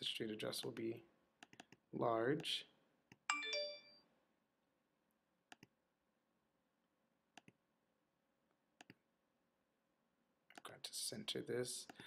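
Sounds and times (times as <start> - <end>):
computer mouse clicks: 1.4 - 1.8, 5.5 - 5.7, 7.4 - 7.6, 8.8 - 9.0.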